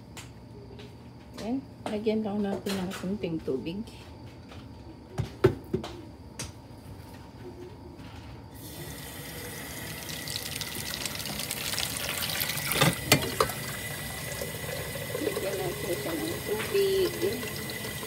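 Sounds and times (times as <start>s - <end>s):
water running into kettle: 8.6s - 18.0s.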